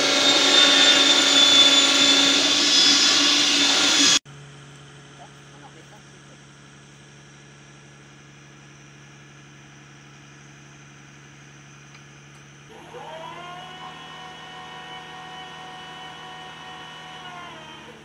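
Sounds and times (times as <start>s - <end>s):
diesel engine idling and revving: 0.0s - 4.2s, 12.7s - 18.0s
high-pitched crane whine: 0.0s - 4.2s, 7.2s - 18.0s.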